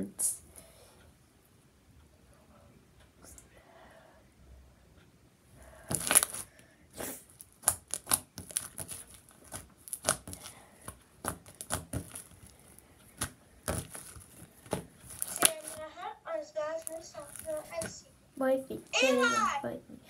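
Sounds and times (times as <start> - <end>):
slime crackling and popping: 5.9 - 6.5, 7.3 - 15.8, 16.8 - 17.9.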